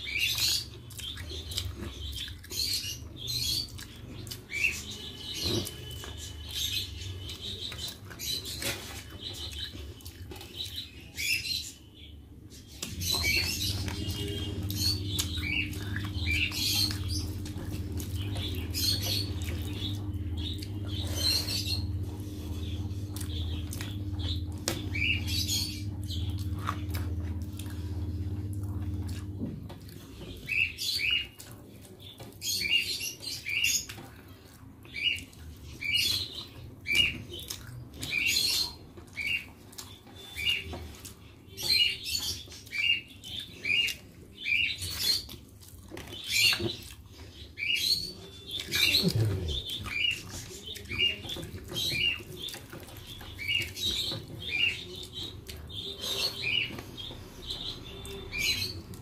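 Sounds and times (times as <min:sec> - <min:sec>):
person chewing and lip smacking: 0:00.6 - 0:02.8, 0:03.5 - 0:04.8, 0:12.8 - 0:25.0, 0:26.2 - 0:30.3, 0:31.2 - 0:32.3, 0:37.0 - 0:38.2, 0:39.1 - 0:40.0, 0:44.8 - 0:47.2, 0:48.5 - 0:53.0, 0:54.9 - 0:56.9
low steady hum: 0:12.0 - 0:30.6.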